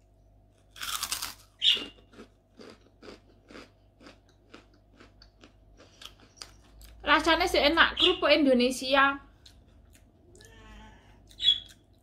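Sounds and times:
crunchy chewing: 0.4 - 7.0, 9.3 - 10.6, 11.2 - 12.0
crunching bites of cracker: 0.5 - 6.6.

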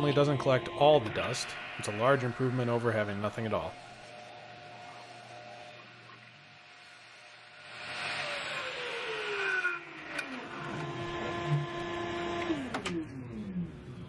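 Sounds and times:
electric motor whirring: 0.0 - 13.6.

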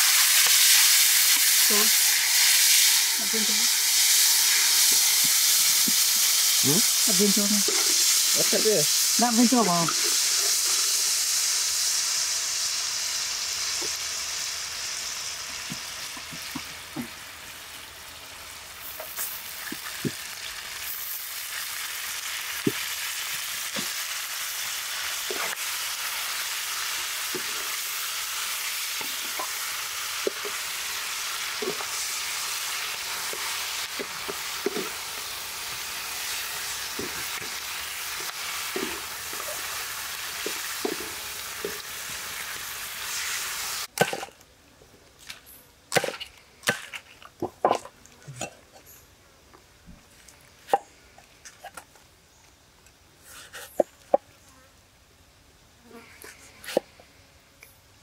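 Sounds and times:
spices sizzling in hot oil: 0.0 - 44.3
intestines frying with steady sizzle: 0.0 - 44.4
sharp pops in frying oil: 0.3 - 0.7.

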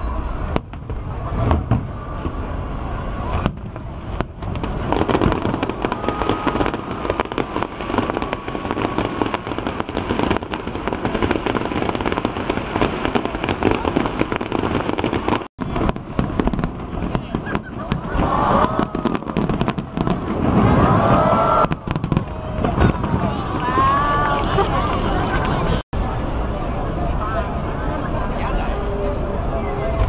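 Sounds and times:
crowd voices: 0.0 - 30.0
fireworks bursting and crackling: 0.0 - 30.0.

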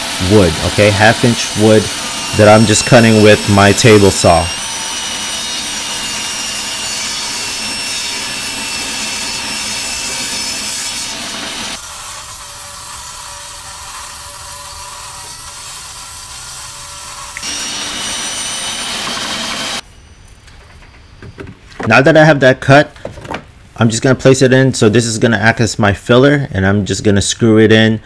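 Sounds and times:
table saw ripping wood: 0.0 - 19.8.

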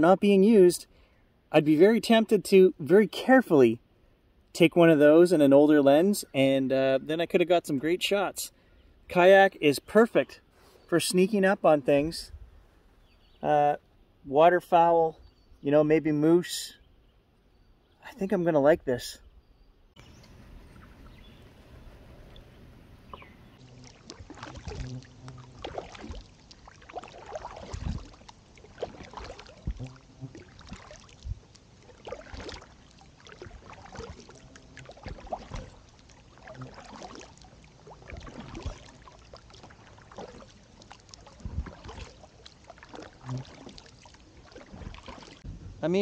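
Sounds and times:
kayak paddle splashing water: 20.0 - 45.8.

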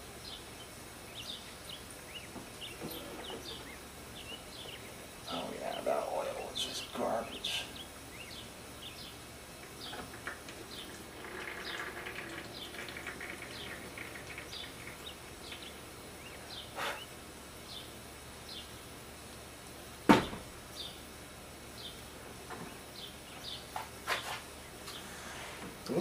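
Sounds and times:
small birds chirping: 0.0 - 19.6, 20.2 - 26.0
oil trickling into jug: 9.6 - 16.4
sharp knock: 20.1 - 20.4.

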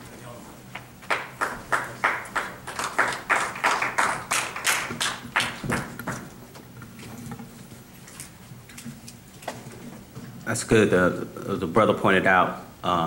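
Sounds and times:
people clapping in rhythm: 0.8 - 6.4.

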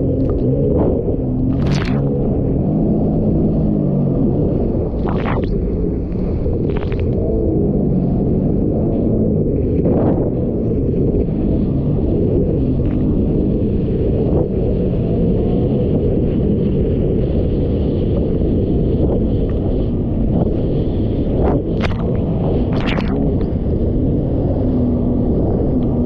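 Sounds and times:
watercraft engine rumble: 0.0 - 26.0
wind buffeting microphone: 0.0 - 26.0
hull hitting water: 21.8 - 23.5.

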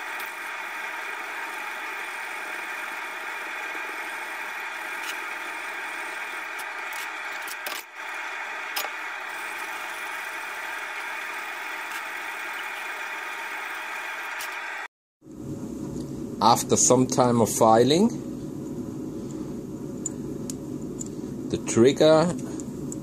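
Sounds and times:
machine running: 0.0 - 14.9.

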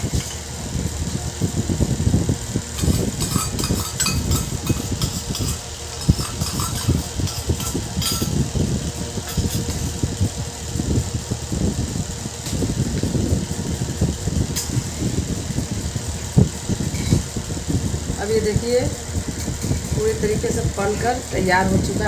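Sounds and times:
steady low hum: 0.0 - 22.0
metal spatula scraping metal pan: 2.8 - 8.3.

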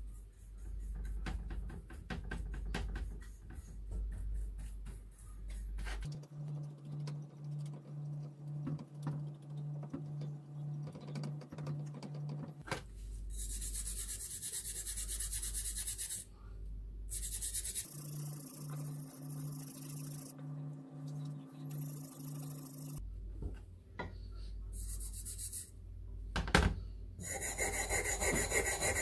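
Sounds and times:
paintbrush scrubbing metal: 17.1 - 20.3, 27.2 - 29.0.

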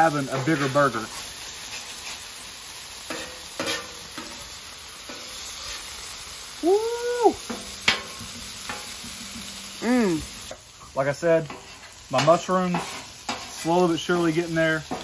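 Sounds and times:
patties sizzling on a griddle: 0.0 - 15.0
metal spatulas scraping steel: 3.0 - 6.0, 11.5 - 13.7
short pitched cry: 6.6 - 7.4.

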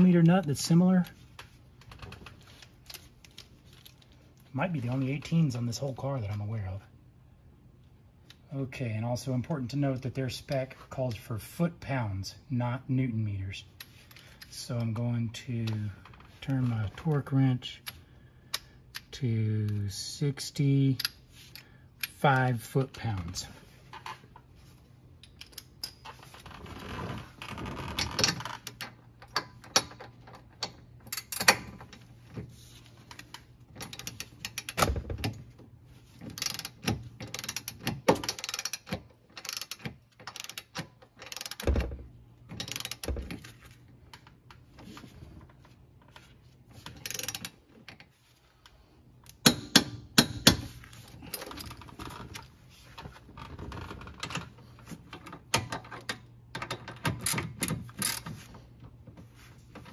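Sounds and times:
torque wrench clicking: 36.4 - 41.6.

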